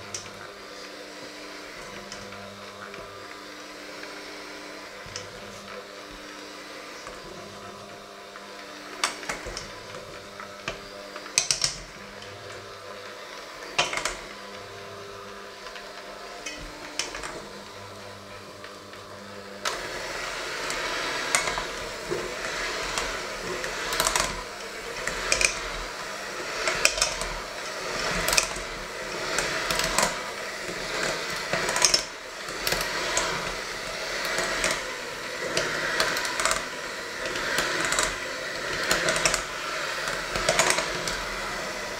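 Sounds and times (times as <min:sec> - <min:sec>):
electric hand mixer humming: 0:00.0 - 0:41.9
beaters clicking against bowl: 0:11.3 - 0:11.9, 0:25.0 - 0:25.7, 0:26.6 - 0:27.3, 0:31.0 - 0:32.1.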